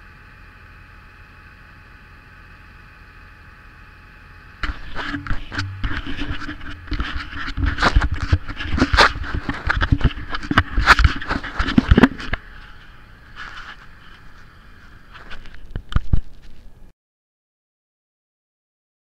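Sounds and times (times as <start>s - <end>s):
tractor engine hum: 0.0s - 16.9s
faint rustling: 4.6s - 16.9s.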